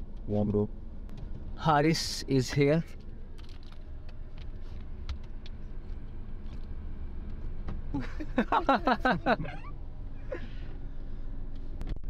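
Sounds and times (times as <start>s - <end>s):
car cabin low rumble: 0.0s - 12.0s.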